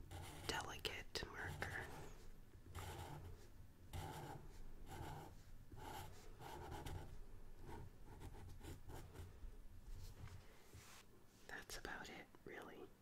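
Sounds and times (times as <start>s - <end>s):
marker scratching on paper: 0.1s - 0.8s, 1.4s - 9.3s.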